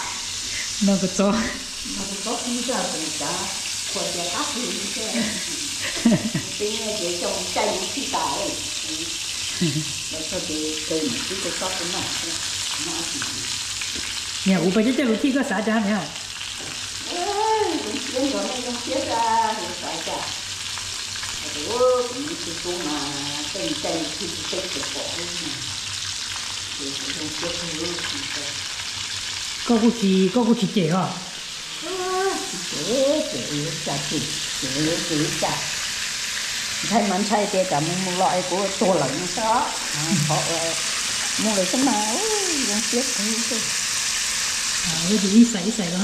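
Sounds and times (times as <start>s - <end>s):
voices talking: 0.0s - 13.5s, 17.0s - 20.4s, 29.7s - 35.8s, 36.8s - 43.7s
food sizzling in a pan: 0.0s - 46.0s.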